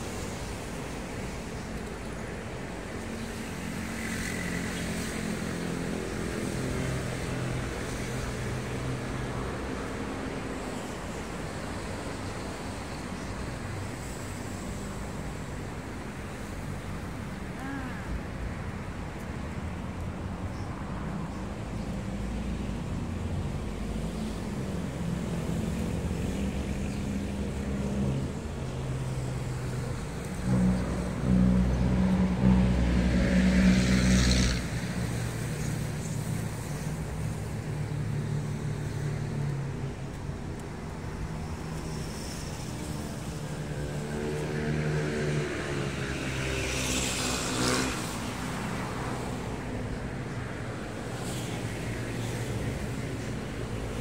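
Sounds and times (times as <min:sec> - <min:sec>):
road traffic rumble: 0:00.0 - 0:54.0
vehicle engine passing: 0:29.3 - 0:37.3.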